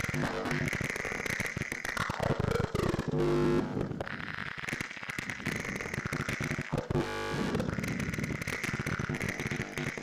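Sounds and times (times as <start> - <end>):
crackling electronic noise music: 0.0 - 10.0
buzzing tone: 2.8 - 10.0.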